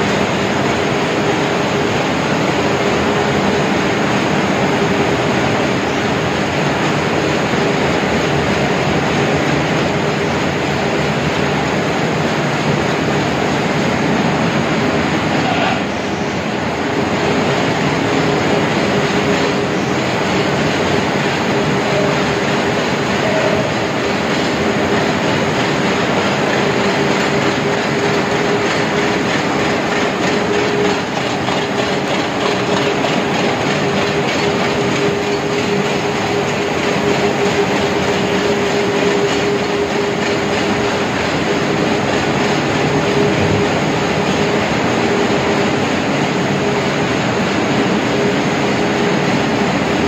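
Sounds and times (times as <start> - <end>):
constant machine hum: 0.0 - 50.0
loud mechanical clatter: 0.0 - 50.0.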